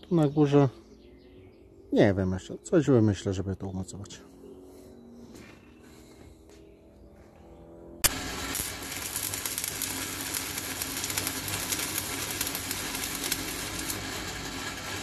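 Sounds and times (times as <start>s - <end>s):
electric arc welding sizzle: 8.0s - 15.0s.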